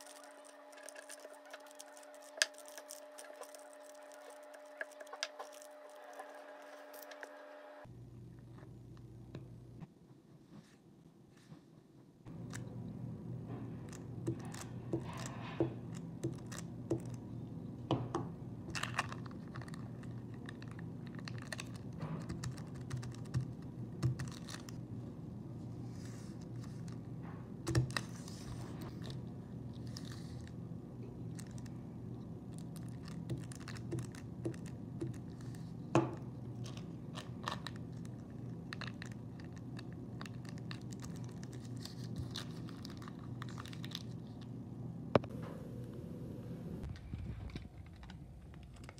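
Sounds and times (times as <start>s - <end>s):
paper rustling and crinkling: 0.0s - 7.3s, 36.5s - 44.4s
steady low hum: 0.0s - 48.9s.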